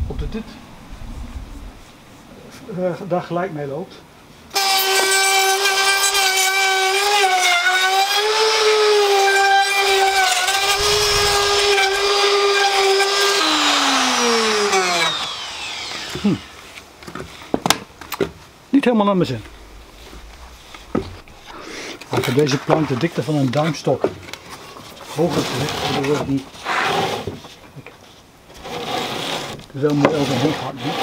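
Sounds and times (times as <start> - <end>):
router high whine: 10.2 - 16.8.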